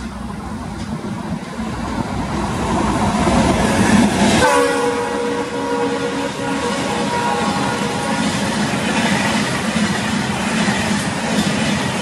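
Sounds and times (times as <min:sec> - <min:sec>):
locomotive engine and rail noise: 0:00.0 - 0:12.0
locomotive horn: 0:04.4 - 0:08.4.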